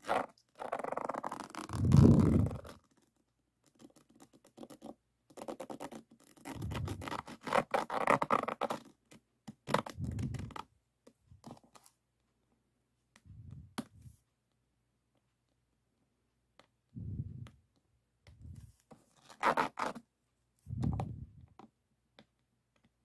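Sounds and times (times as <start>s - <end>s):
plastic tool scraping resin: 0.0s - 3.1s, 3.8s - 10.7s.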